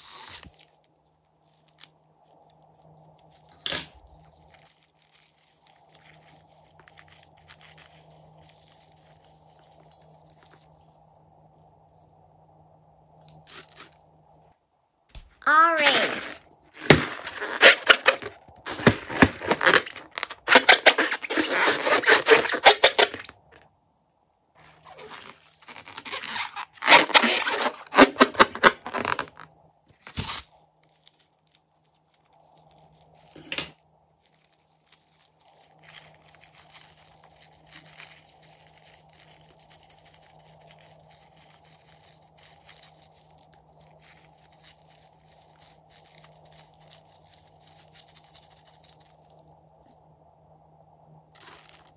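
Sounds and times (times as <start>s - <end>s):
low steady hum: 0.3s - 20.5s, 29.0s - 51.9s
faint crackling and rustling: 0.3s - 23.7s, 24.6s - 28.0s, 28.6s - 50.0s
rubber balloon squeaking: 15.7s - 23.5s, 24.6s - 29.4s.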